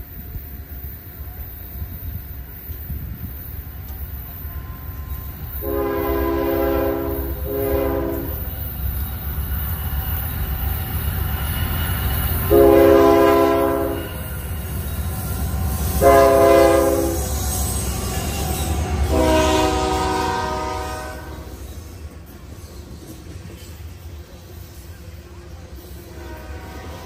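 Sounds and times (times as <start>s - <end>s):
train rolling past: 0.0s - 27.0s
locomotive air horn blasts: 4.4s - 8.5s, 12.5s - 14.3s, 15.9s - 18.0s, 19.0s - 21.6s, 26.1s - 27.0s.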